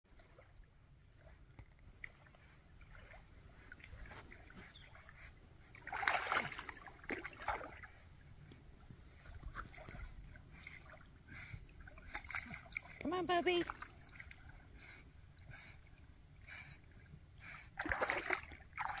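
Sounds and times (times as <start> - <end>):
puppy splashing in water: 2.0 - 8.2, 9.2 - 14.6, 17.7 - 19.0.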